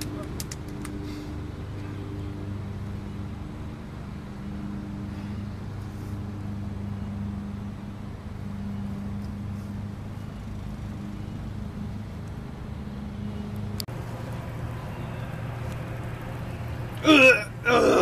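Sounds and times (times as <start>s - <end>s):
low motor hum: 0.0s - 18.0s.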